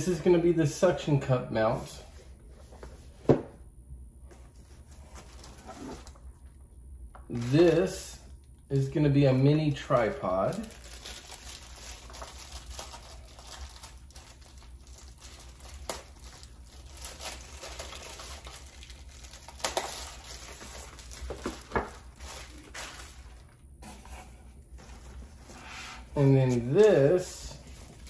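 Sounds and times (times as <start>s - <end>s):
plastic wrapping crinkling and tearing: 4.6s - 6.2s, 7.3s - 8.0s, 8.7s - 23.6s, 26.4s - 28.0s.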